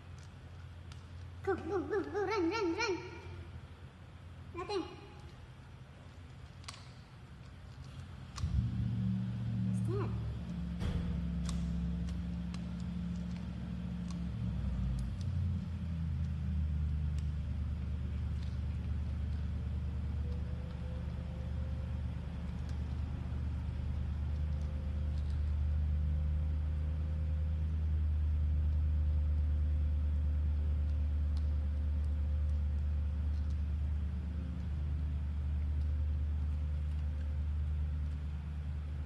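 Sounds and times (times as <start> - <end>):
low mechanical rumble: 0.0 - 39.0
faint clicks: 11.3 - 25.7.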